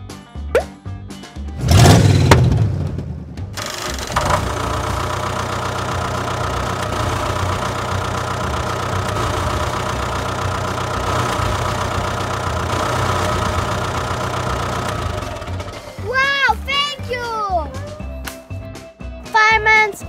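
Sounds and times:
toy tractor motor drone: 3.6 - 16.0.

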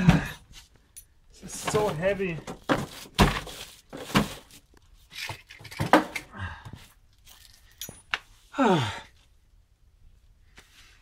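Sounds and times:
man groaning: 8.5 - 9.1.

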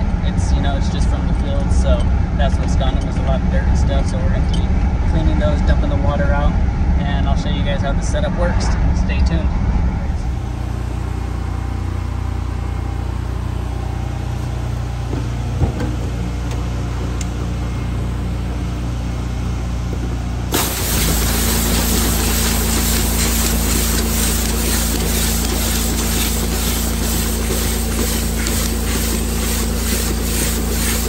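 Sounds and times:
pressure washer engine running: 20.4 - 31.0
high-pressure water hissing: 20.5 - 31.0.

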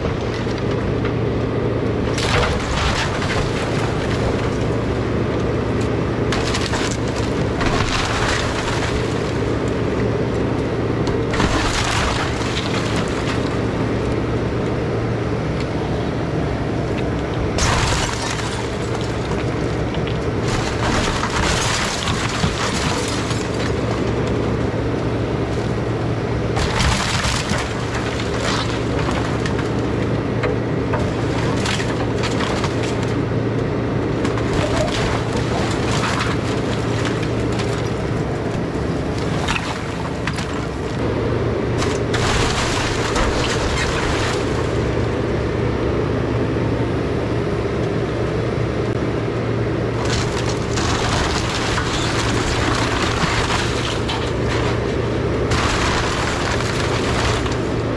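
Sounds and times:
excavator diesel engine running: 0.0 - 57.9
timbers cracking and crashing: 2.0 - 13.8, 17.5 - 24.6, 26.5 - 30.1, 30.8 - 33.2, 34.1 - 41.0, 41.8 - 45.1, 50.0 - 57.9.

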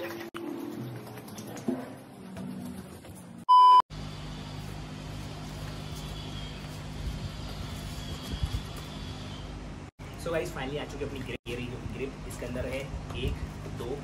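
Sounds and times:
electronic beep: 3.5 - 3.8.

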